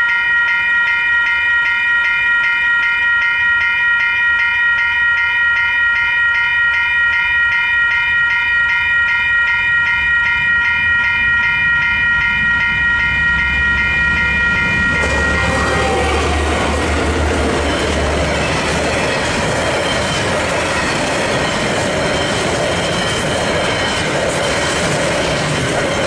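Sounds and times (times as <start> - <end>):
level crossing bells ringing: 0.0 - 26.0
freight train rumble: 8.6 - 26.0.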